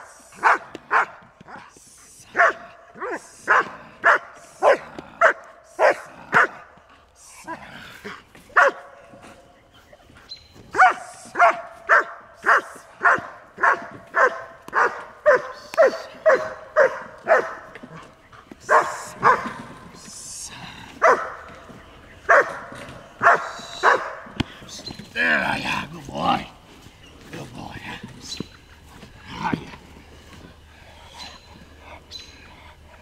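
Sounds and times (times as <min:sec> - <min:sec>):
dog barking sharply: 0:02.4 - 0:06.6, 0:10.8 - 0:17.6, 0:18.7 - 0:19.5, 0:22.3 - 0:22.6, 0:23.2 - 0:24.2.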